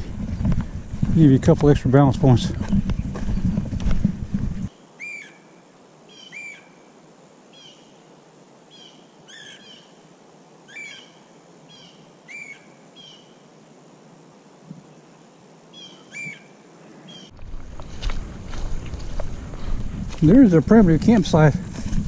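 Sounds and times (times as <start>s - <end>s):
bird calling slurred notes: 4.6s - 6.9s, 8.7s - 10.0s, 10.7s - 13.4s, 15.8s - 17.4s
faint background hiss: 4.7s - 22.0s.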